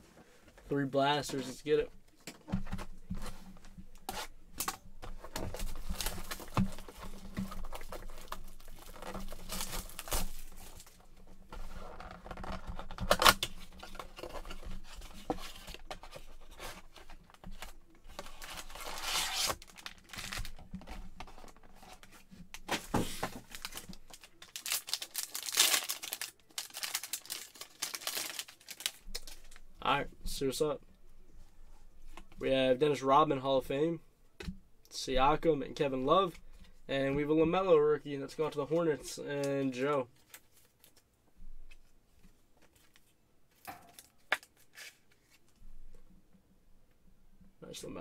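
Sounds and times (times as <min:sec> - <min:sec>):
card packs tearing and crinkling: 0:05.2 - 0:11.0, 0:17.6 - 0:20.6, 0:22.7 - 0:29.6.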